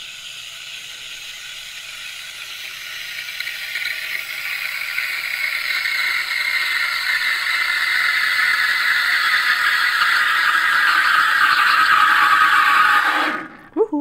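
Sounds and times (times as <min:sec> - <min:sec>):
steam wand hissing in milk: 0:00.0 - 0:13.7.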